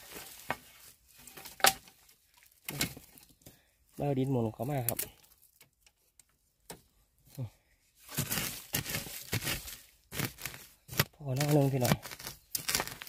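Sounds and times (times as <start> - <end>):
dry leaves and twigs crackling: 0.0 - 6.5, 8.0 - 13.0.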